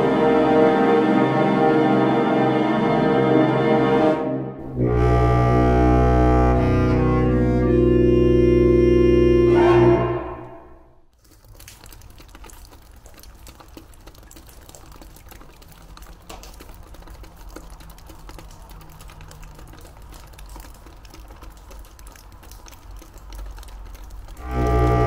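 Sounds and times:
bowed string music: 0:00.0 - 0:10.8
low hum: 0:04.6 - 0:11.1.

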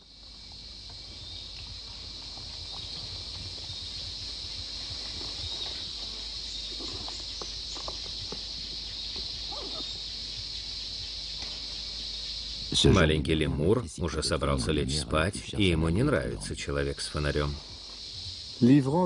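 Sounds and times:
leaves and twigs rustling: 0:00.0 - 0:12.6
high-pitched insect chorus: 0:00.0 - 0:19.0.

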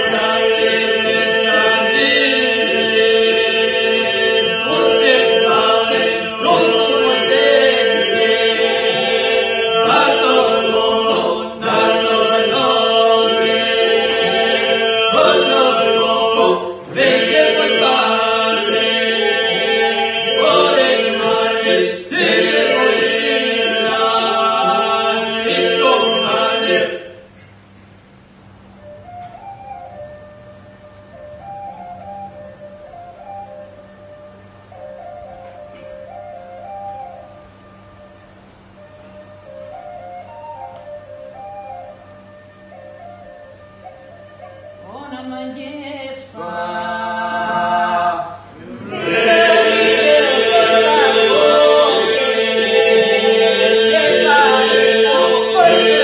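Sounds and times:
men singing polyphonic song: 0:00.0 - 0:27.2, 0:46.4 - 0:56.0
steady vocal drone: 0:00.0 - 0:27.7, 0:44.8 - 0:56.0.

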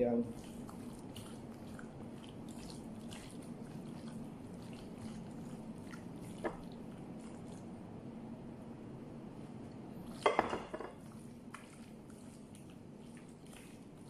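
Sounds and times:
wet squishing of meat: 0:00.1 - 0:07.9, 0:11.0 - 0:14.0.

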